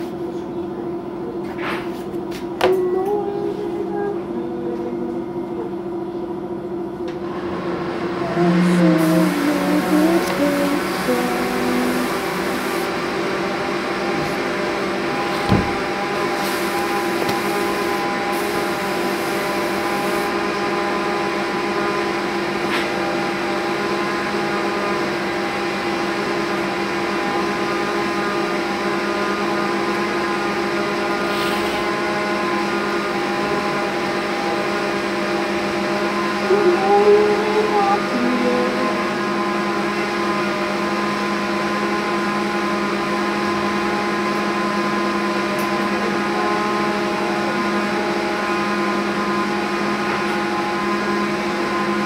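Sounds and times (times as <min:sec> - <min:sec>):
electric motor humming: 0:08.1 - 0:20.3.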